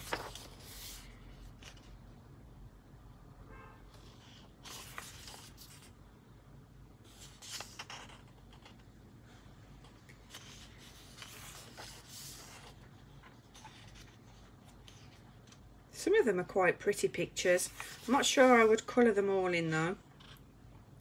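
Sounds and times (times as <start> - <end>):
paper pages turning: 0.0 - 2.0, 4.2 - 6.0, 7.0 - 8.9, 9.8 - 15.7, 17.6 - 19.0.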